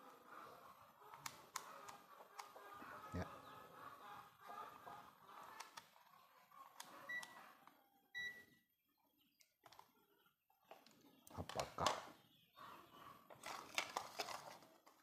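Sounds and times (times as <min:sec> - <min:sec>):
multimeter beeping: 0:06.9 - 0:07.5, 0:08.1 - 0:08.6.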